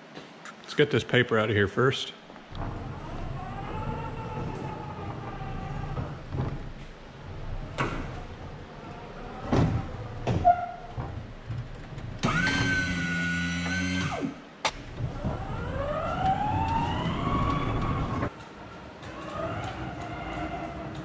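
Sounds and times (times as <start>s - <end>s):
hydraulic pump motor hum: 2.5s - 18.3s
pallet jack motor whining: 2.5s - 18.3s.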